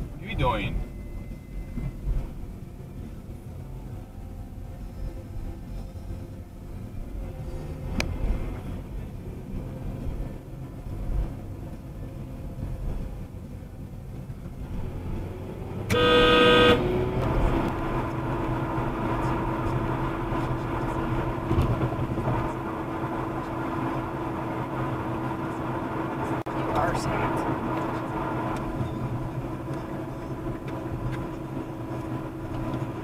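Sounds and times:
car road and engine noise: 0.0 - 33.0
car horn: 15.8 - 17.6.

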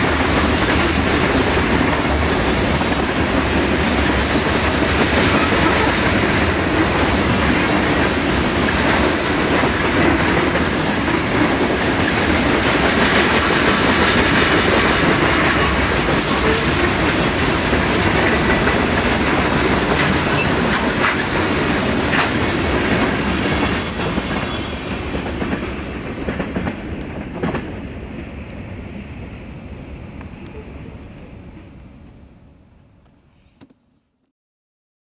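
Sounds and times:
wheels clacking over rail joints: 0.0 - 27.8
freight train rolling past: 0.0 - 33.2.

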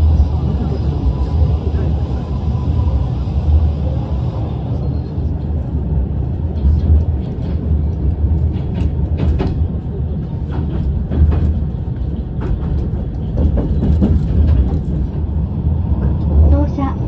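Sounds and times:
train clicks and knocks: 0.0 - 17.0
train rumble: 0.0 - 17.0.

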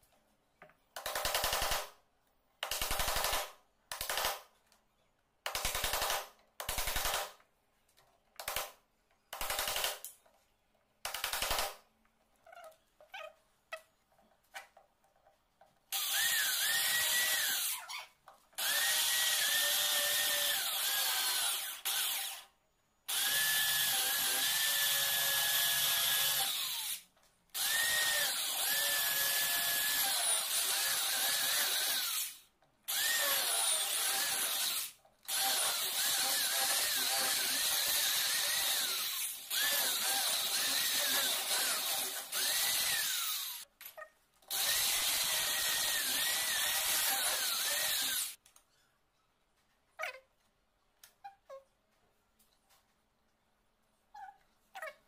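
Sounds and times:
electric drill boring into wood: 15.9 - 17.8, 18.6 - 22.5, 23.1 - 27.0, 27.6 - 43.6, 44.5 - 48.4.

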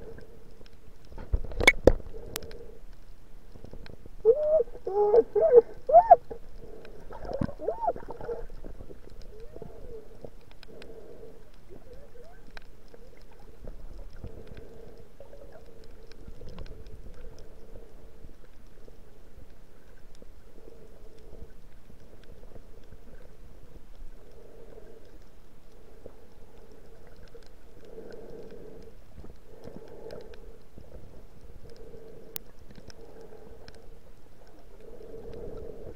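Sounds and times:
low underwater rumble: 3.4 - 25.1.

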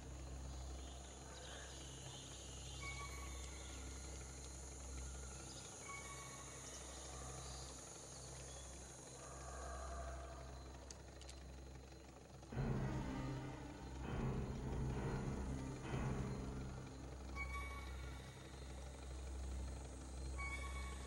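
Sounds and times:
steady low rumble: 12.1 - 21.0.

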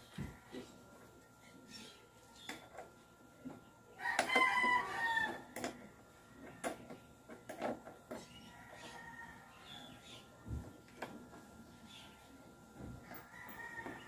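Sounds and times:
rooster crowing: 4.0 - 5.5, 13.1 - 14.0.

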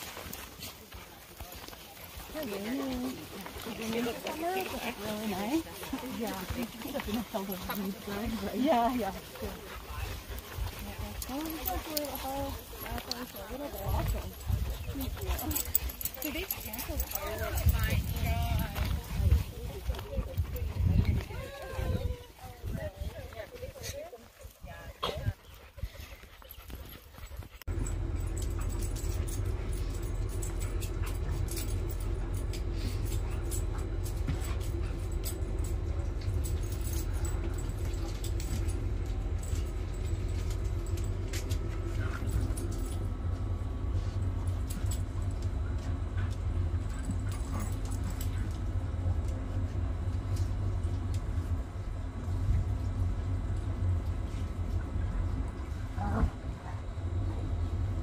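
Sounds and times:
low machine hum: 1.5 - 58.0
dog collar tags jingling: 2.1 - 19.2, 26.9 - 49.6.

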